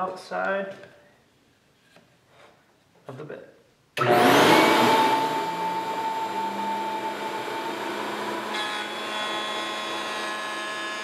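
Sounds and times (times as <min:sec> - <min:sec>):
router whining while cutting wood: 0:04.0 - 0:11.0.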